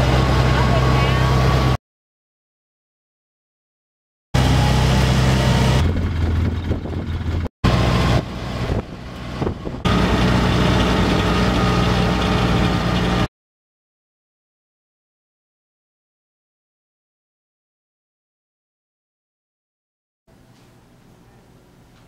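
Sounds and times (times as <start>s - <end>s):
utility vehicle engine running: 0.0s - 1.8s, 4.4s - 13.3s.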